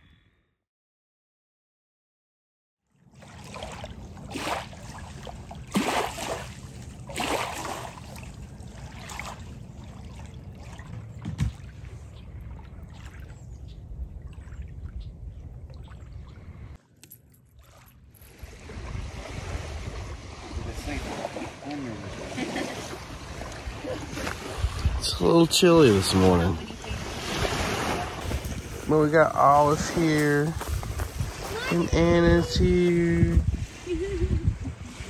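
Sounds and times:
water lapping at shore: 0:02.9 - 0:35.0
wind over microphone: 0:10.7 - 0:16.8, 0:18.3 - 0:35.0.

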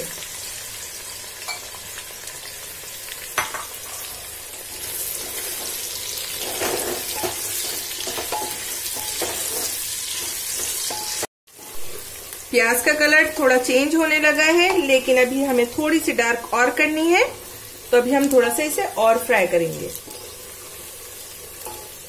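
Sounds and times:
onions sizzling in hot oil: 0:00.0 - 0:22.0
spatula scraping a pot: 0:04.7 - 0:11.7.

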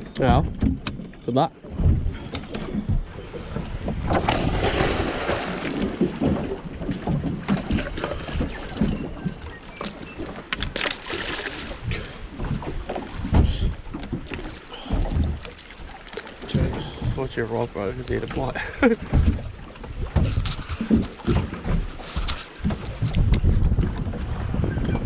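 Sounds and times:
water slapping against boat hull: 0:00.0 - 0:25.0
wind on microphone: 0:19.1 - 0:25.0.

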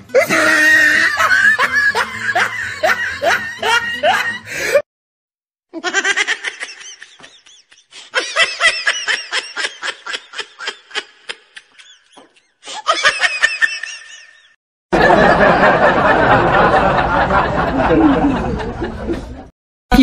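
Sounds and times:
high-pitched comic laughter: 0:00.1 - 0:04.7, 0:05.7 - 0:16.0.

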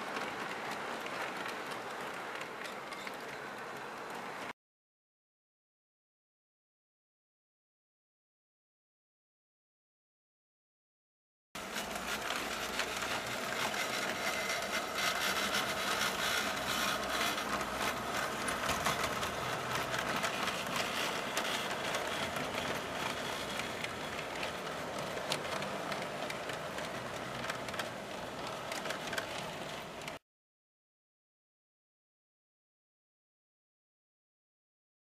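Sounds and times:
model train whirring: 0:00.0 - 0:04.5, 0:11.6 - 0:30.2
wheels clicking and rattling: 0:00.0 - 0:04.5, 0:11.6 - 0:30.2.

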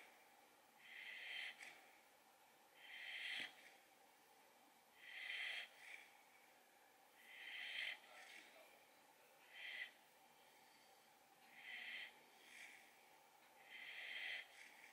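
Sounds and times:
puppy breathing in sleep: 0:00.8 - 0:01.9, 0:02.8 - 0:03.8, 0:05.0 - 0:06.2, 0:07.2 - 0:08.6, 0:09.5 - 0:13.0, 0:13.6 - 0:14.9.

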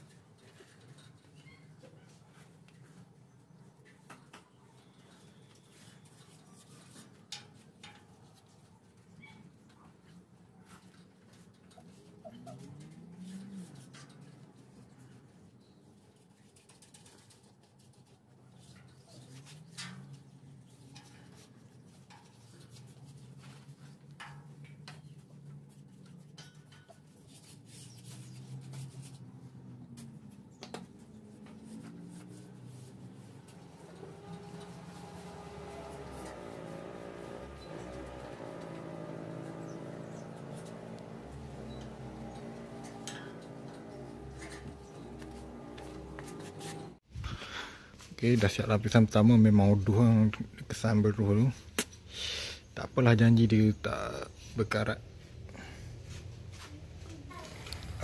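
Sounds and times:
paintbrush brushing on metal: 0:04.8 - 0:08.8, 0:10.6 - 0:47.0.

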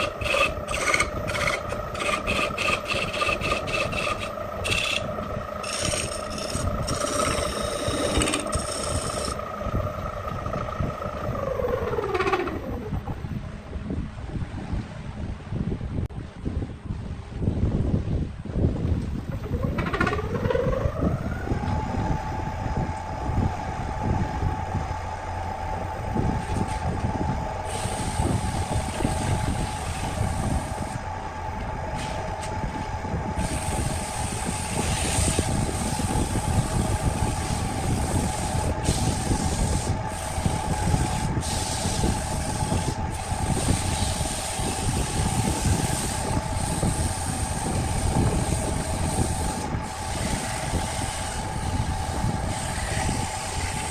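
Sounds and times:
wood lathe whine: 0:00.0 - 0:12.9, 0:19.4 - 0:53.9
hiss of wood being worked: 0:27.7 - 0:31.0, 0:33.4 - 0:53.9.

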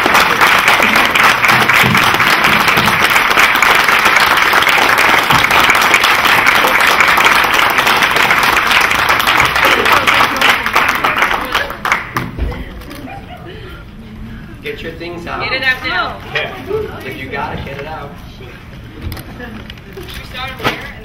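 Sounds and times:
loud sustained applause: 0:00.0 - 0:12.4.

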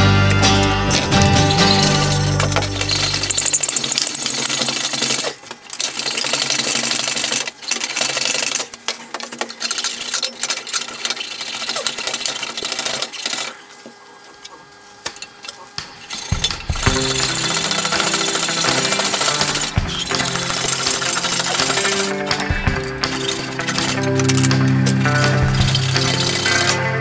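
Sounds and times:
welding arc crackling: 0:00.0 - 0:08.8, 0:15.0 - 0:27.0.

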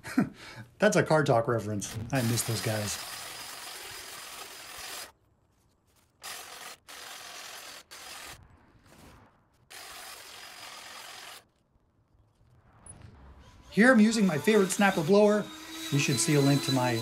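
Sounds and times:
hedge trimmer cutting: 0:01.9 - 0:05.1, 0:06.2 - 0:08.4, 0:09.7 - 0:11.4, 0:13.8 - 0:17.0.

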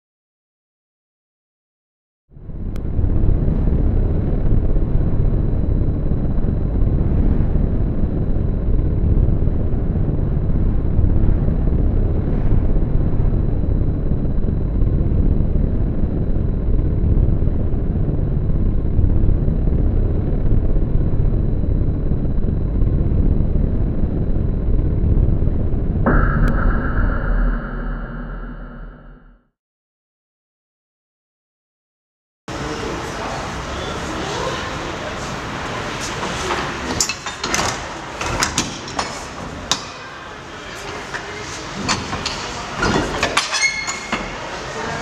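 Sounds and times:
low machinery rumble: 0:02.3 - 0:29.4
faint high whine: 0:26.1 - 0:29.4.

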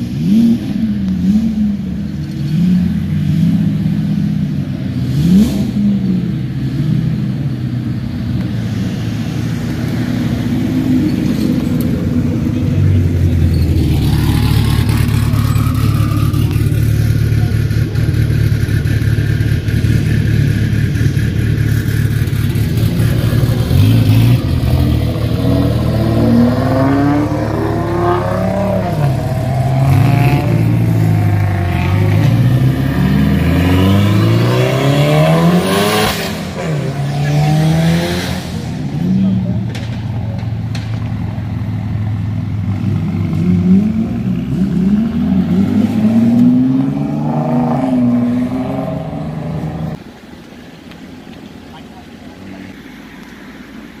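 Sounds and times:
sports car engines running slowly: 0:00.0 - 0:34.2, 0:38.6 - 0:54.0
car engine revving hard: 0:21.8 - 0:39.3, 0:42.7 - 0:50.0.

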